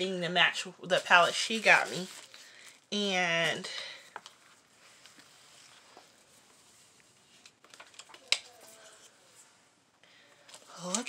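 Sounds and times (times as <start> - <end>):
faint room tone hiss: 0.0 - 11.0.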